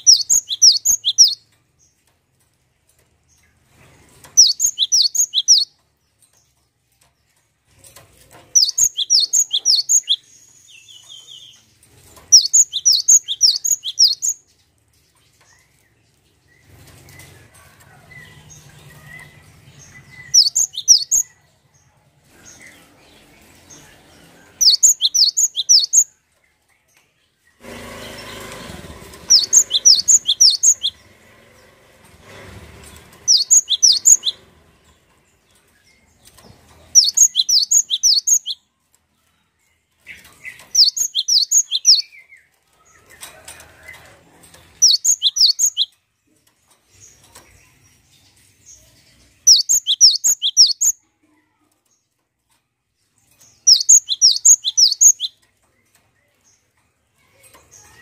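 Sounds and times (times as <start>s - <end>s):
bird singing sharp high notes: 12.4s - 14.4s, 24.6s - 26.0s, 29.3s - 31.0s, 33.3s - 34.4s, 37.0s - 38.6s, 49.5s - 50.9s, 53.7s - 55.4s.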